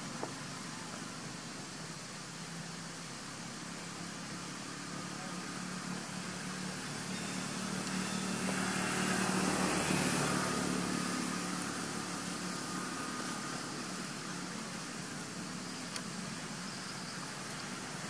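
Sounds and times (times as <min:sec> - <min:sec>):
steady high hiss: 0:00.0 - 0:18.0
vehicle passing by: 0:03.8 - 0:14.8.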